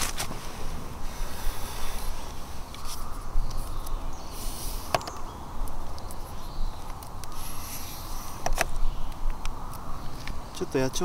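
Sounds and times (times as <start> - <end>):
scuffing and rustling footsteps: 0.0 - 0.8
sharp clicks: 8.3 - 10.7.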